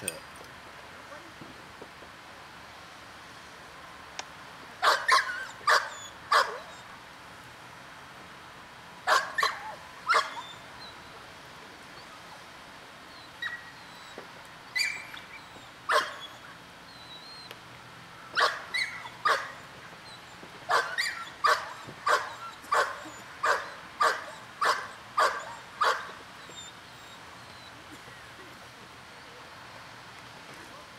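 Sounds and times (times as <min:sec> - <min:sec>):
dog barking: 0:04.8 - 0:06.7, 0:09.1 - 0:10.4, 0:15.9 - 0:16.3, 0:18.4 - 0:19.6, 0:20.7 - 0:26.1.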